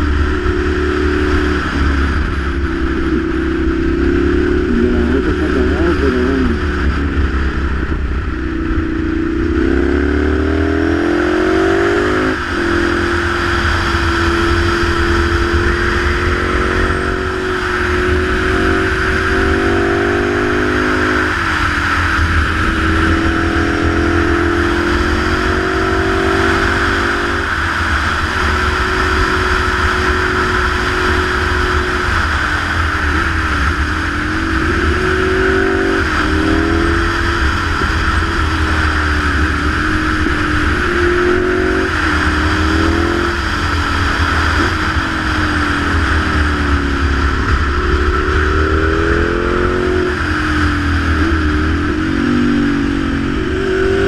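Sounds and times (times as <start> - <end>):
motorcycle engine accelerating: 0.0 - 54.0.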